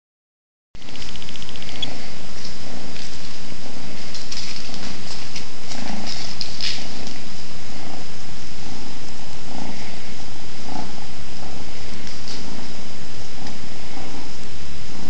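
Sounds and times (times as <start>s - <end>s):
kitten purring: 0.8s - 15.0s.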